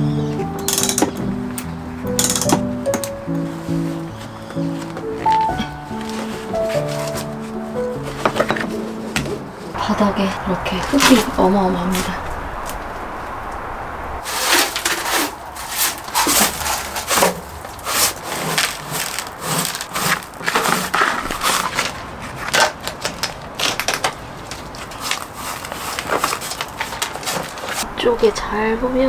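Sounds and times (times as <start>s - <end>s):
broom sweeping grit on metal floor: 14.2s - 18.2s.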